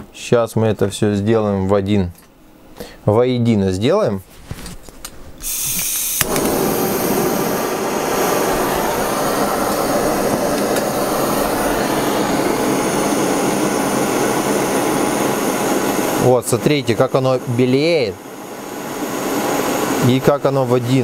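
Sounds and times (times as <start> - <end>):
torch ignition click: 5.4 - 16.0
gas torch hissing: 5.4 - 21.0.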